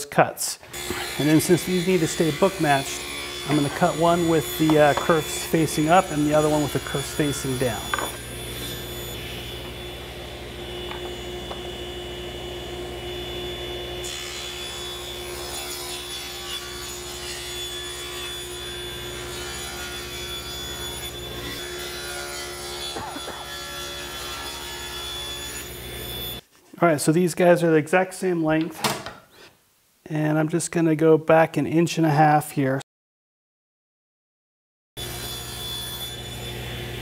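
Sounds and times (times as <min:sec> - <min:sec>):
table saw humming: 0:00.7 - 0:26.4, 0:35.0 - 0:37.0.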